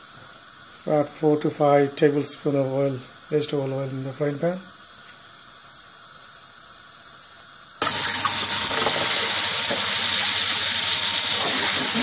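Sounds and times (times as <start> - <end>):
faint steady hiss: 0.0 - 12.0
oil sizzling loudly in a frying pan: 0.0 - 12.0.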